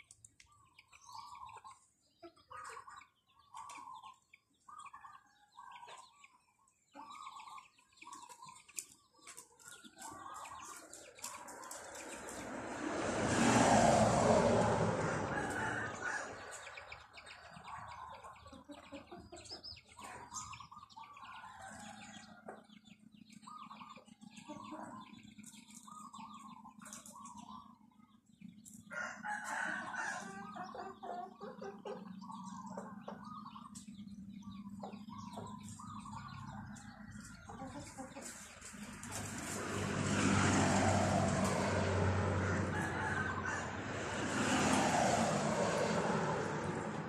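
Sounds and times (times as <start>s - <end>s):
small birds chirping: 0.0s - 12.5s, 16.4s - 29.0s, 30.2s - 39.4s
chickens clucking: 0.2s - 12.4s, 15.1s - 28.8s, 29.4s - 39.7s.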